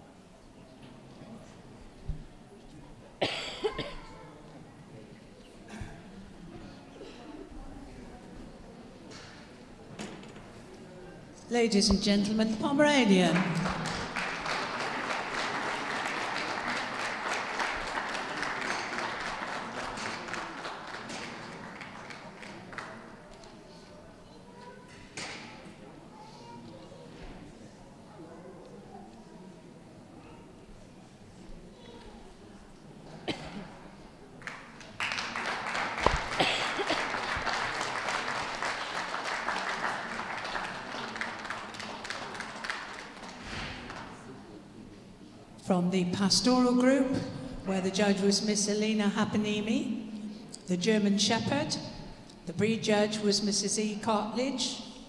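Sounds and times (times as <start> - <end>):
audience applauding: 13.3 - 23.0, 34.4 - 44.1.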